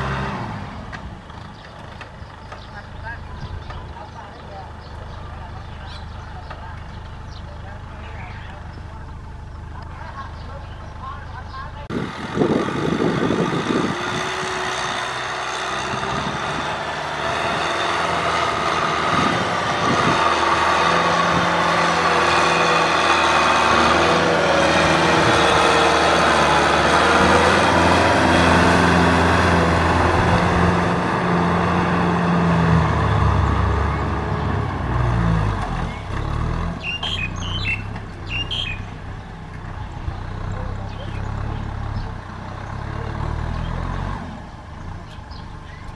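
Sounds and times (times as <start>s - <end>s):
tractor diesel engine under load: 0.0s - 45.9s
tiller blades churning soil: 11.9s - 45.9s.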